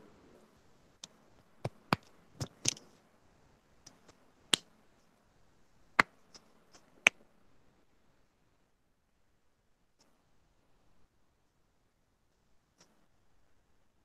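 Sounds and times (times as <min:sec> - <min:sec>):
sharp clicks and taps: 0:01.0 - 0:02.9.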